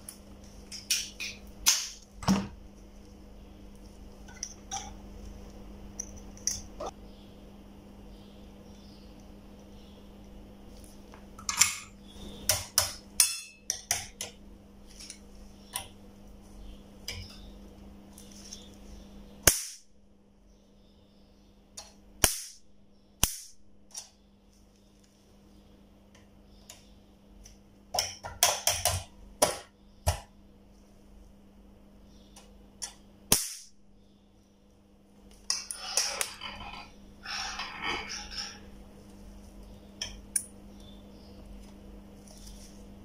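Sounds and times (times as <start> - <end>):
steady low hum: 0.0 - 43.0
bug zapper snapping cracks: 19.4 - 19.9, 21.8 - 22.6, 23.2 - 24.1, 32.8 - 33.8.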